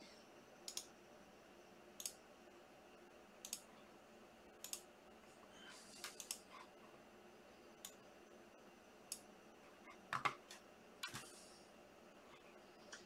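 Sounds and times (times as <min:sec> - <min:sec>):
faint room hiss: 0:00.0 - 0:13.0
computer mouse clicking: 0:00.6 - 0:00.9, 0:02.0 - 0:02.2, 0:03.4 - 0:03.7, 0:04.6 - 0:04.9, 0:06.0 - 0:06.7, 0:07.8 - 0:08.0, 0:09.1 - 0:09.3, 0:10.1 - 0:11.4.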